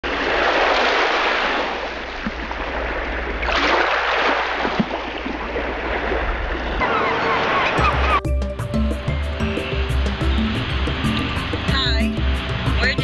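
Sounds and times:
waves washing onto shore: 0.0s - 8.2s, 9.6s - 13.0s.

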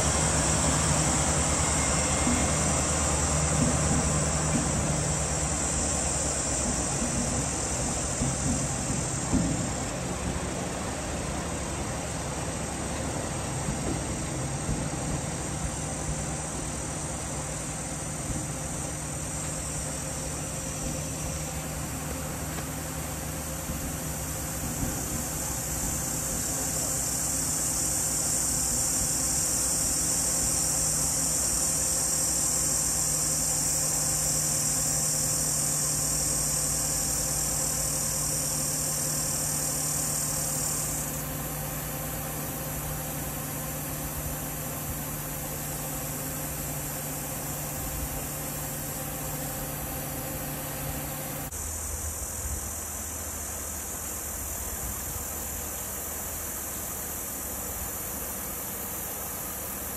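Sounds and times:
vehicle engine idling: 0.0s - 59.9s
high insect buzz: 14.1s - 59.9s.

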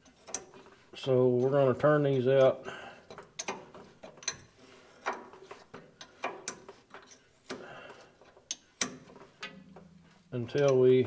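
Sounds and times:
wrench clicking on metal nut: 3.1s - 4.4s, 8.5s - 9.6s.

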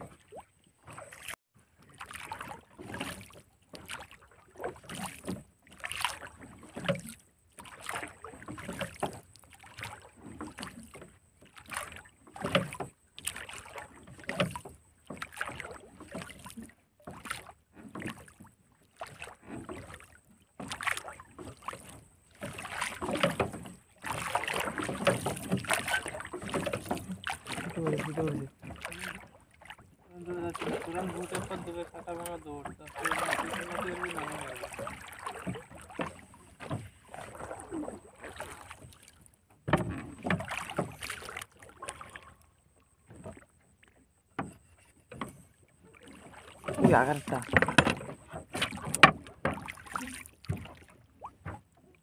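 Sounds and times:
water slapping boat hull: 0.0s - 52.0s.

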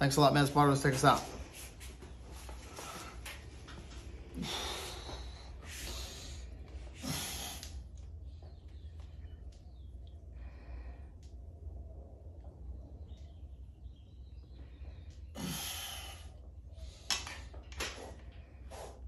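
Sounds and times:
steady low hum: 0.0s - 19.0s
man breathing hard: 2.6s - 8.2s, 10.2s - 11.5s, 14.5s - 17.1s, 18.0s - 19.0s.

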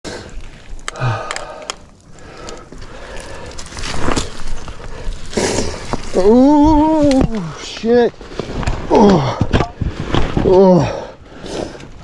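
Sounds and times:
trekking pole tips clicking on rock: 0.6s - 4.7s.

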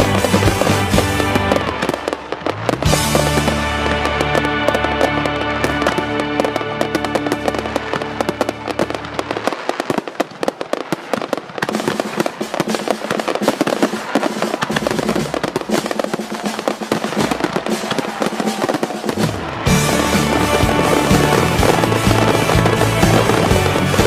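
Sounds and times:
music with bass: 0.0s - 8.2s, 19.4s - 24.0s
fireworks bursting and crackling: 0.0s - 24.0s.

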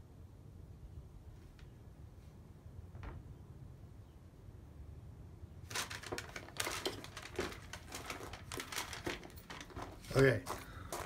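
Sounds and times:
paper sheet rustling: 5.7s - 11.0s.

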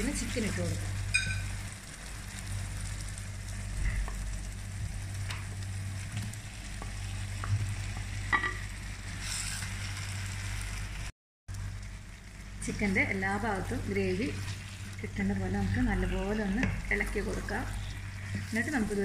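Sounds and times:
gravy sizzling in a pan: 0.0s - 19.0s.

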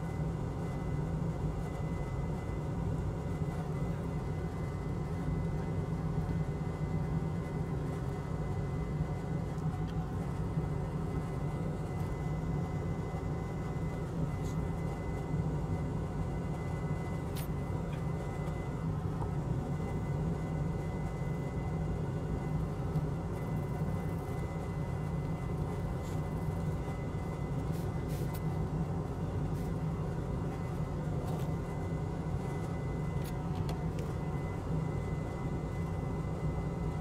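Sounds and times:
equipment hum and hiss: 0.0s - 37.0s
faint high whine: 0.0s - 37.0s.

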